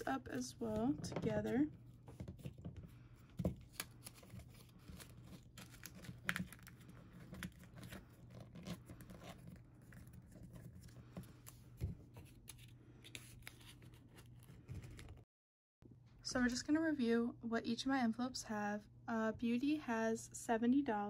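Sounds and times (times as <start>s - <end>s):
paper rustling and crinkling: 0.1s - 15.3s.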